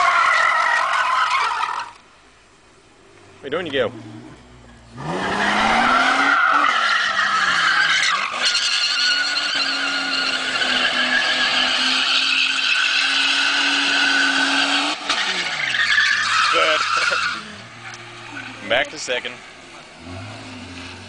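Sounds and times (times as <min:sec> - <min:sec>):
tyres squealing: 0:00.0 - 0:02.0, 0:05.0 - 0:19.2
car engine revving high: 0:03.7 - 0:08.4, 0:09.1 - 0:21.0.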